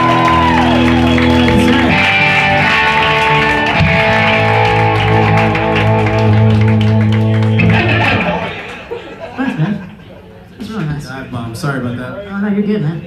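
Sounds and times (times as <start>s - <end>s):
loud rock music with guitar: 0.0s - 8.7s.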